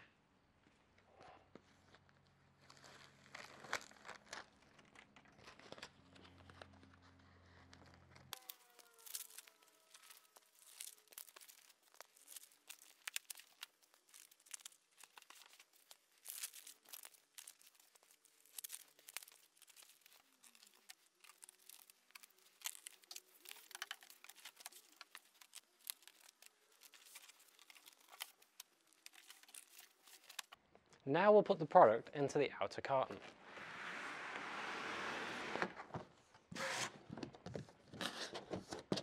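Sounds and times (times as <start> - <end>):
packaging crinkling and tearing: 1.8 - 30.6.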